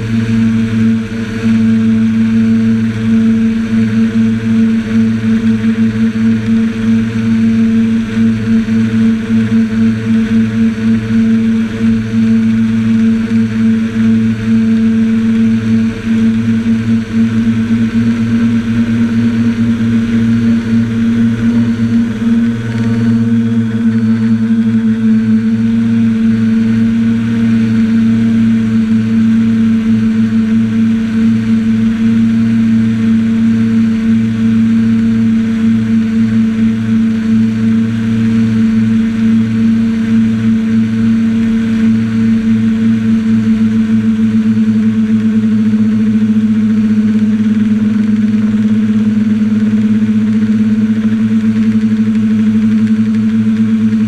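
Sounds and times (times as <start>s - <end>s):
quadcopter motors droning: 0.0s - 54.0s.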